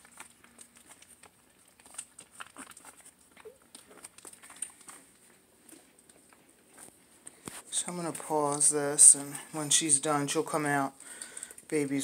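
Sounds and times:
puppies suckling: 0.0 - 11.8.

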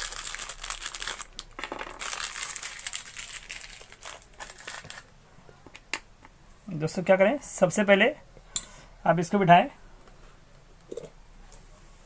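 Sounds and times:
plastic packet crinkling: 0.0 - 5.1.

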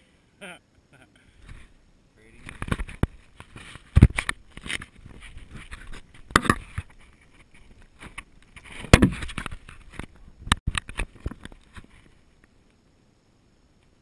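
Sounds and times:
camera handling knocks and rustles: 2.4 - 12.0.

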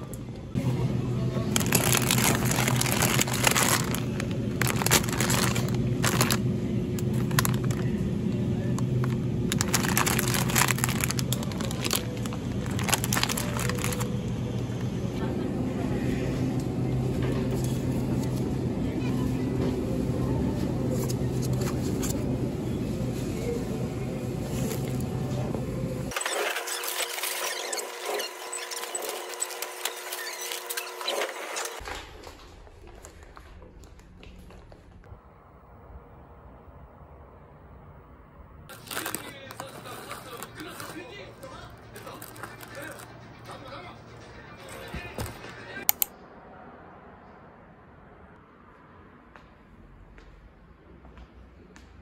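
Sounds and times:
steady low hum: 0.0 - 26.1
plastic packaging crinkling: 1.5 - 8.0, 8.8 - 14.2, 38.7 - 43.1
wire shopping cart rattling: 1.6 - 6.4.

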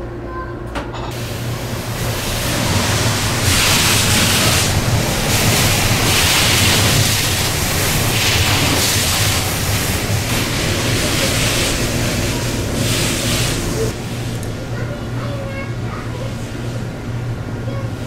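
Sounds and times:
train low hum: 0.0 - 18.0
water spray hissing: 1.2 - 14.4.

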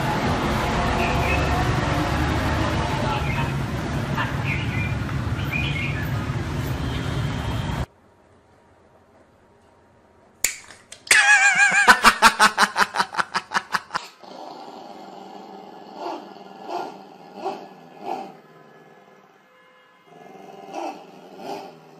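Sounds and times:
sharp click: 10.4 - 11.1
small dog growling: 14.0 - 19.0, 20.1 - 21.9.

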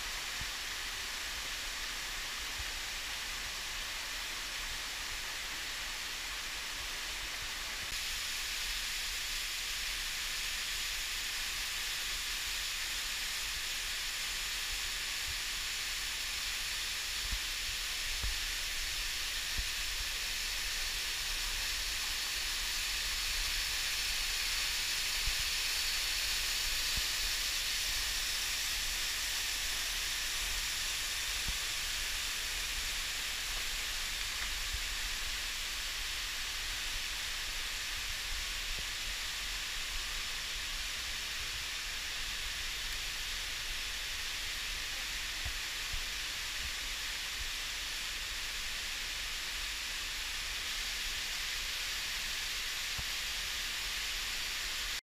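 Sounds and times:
waterfall rushing: 15.5 - 52.6.

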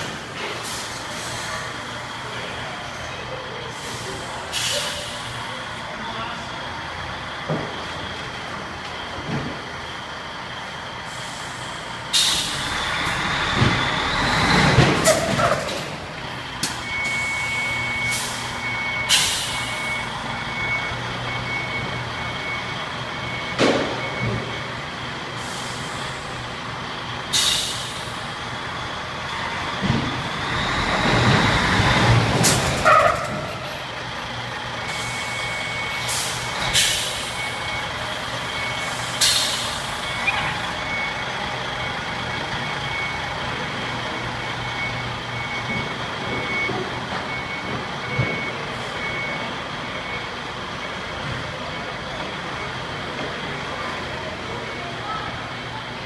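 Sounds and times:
truck diesel engine idling: 0.0 - 56.0
air brake hisses: 3.8 - 5.4, 11.1 - 12.8, 19.1 - 19.8, 25.4 - 26.2, 27.3 - 28.2, 36.1 - 37.4, 38.9 - 39.9.

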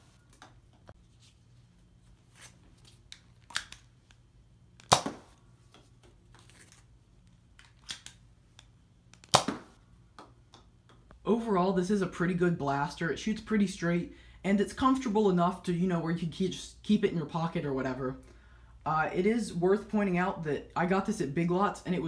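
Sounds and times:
dart blaster shots: 4.9 - 5.3, 9.3 - 9.8.

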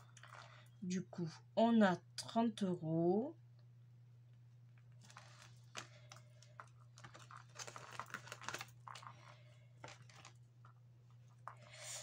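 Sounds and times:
pages rustling: 4.9 - 11.8.

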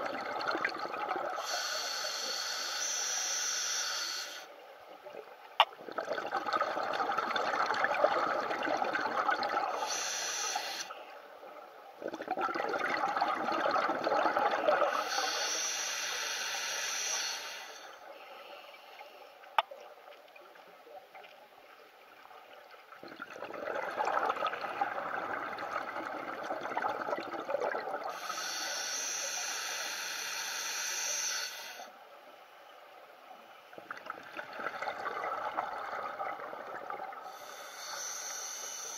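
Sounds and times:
exhaled bubbles rushing: 0.0 - 1.4, 5.8 - 9.8, 12.0 - 14.9, 22.9 - 28.1, 33.8 - 37.3
diver breathing through regulator: 1.4 - 4.5, 9.8 - 11.1, 14.8 - 19.2, 28.1 - 31.9, 37.2 - 38.9.

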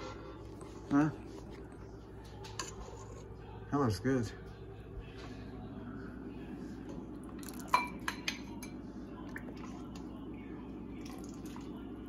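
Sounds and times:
ladle clinking against pot and bowls: 7.4 - 8.9.

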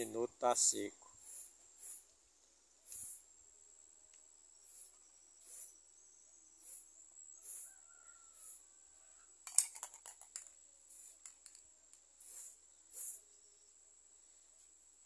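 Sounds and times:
spray paint can hissing: 1.2 - 2.1, 2.8 - 3.3, 4.6 - 5.8, 6.6 - 7.7, 10.1 - 11.6, 12.2 - 13.2.

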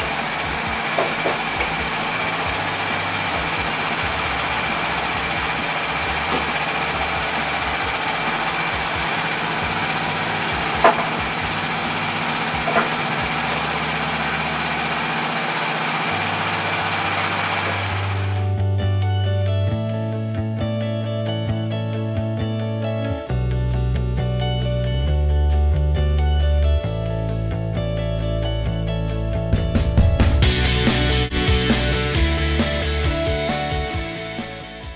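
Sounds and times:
sawmill engine idling: 0.0 - 18.5, 30.0 - 34.9
sharp knocks: 10.4 - 11.6, 12.4 - 13.3.

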